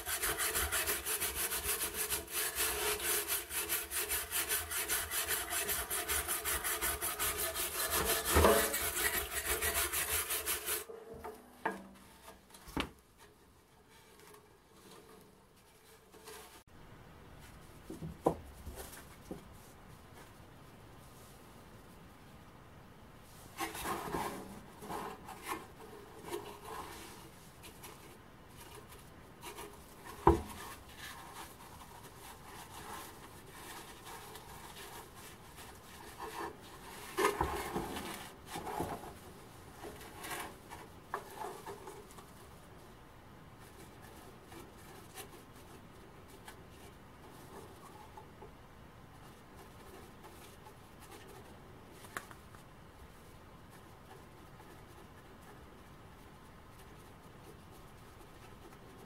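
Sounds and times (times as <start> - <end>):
rubbing and scraping on metal box: 0.0 - 16.6, 23.5 - 42.8.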